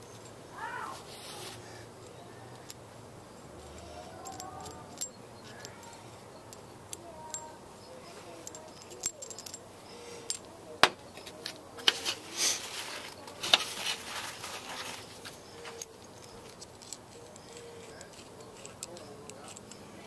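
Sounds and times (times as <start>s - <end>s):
metal washers clinking: 0.0s - 0.8s, 1.4s - 11.4s, 15.1s - 20.0s.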